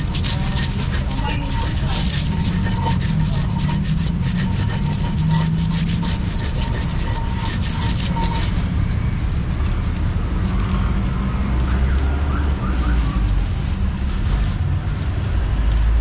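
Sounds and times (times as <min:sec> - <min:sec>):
stone pestle scraping mortar: 0:00.0 - 0:10.8
street traffic rumble: 0:00.0 - 0:16.0.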